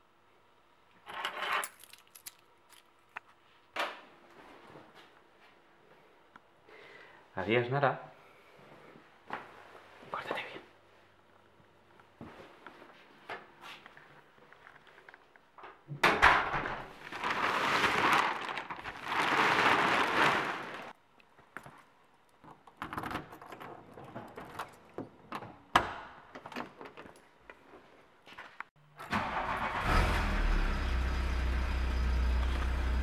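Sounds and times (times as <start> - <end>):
keys jingling: 1.4 - 2.9.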